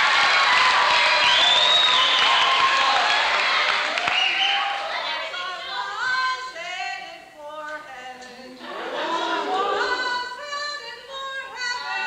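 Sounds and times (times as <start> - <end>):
group singing together: 8.2 - 10.5.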